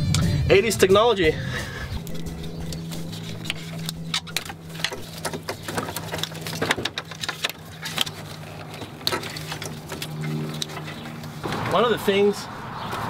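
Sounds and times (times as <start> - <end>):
plastic connectors clicking and rattling: 3.2 - 11.0.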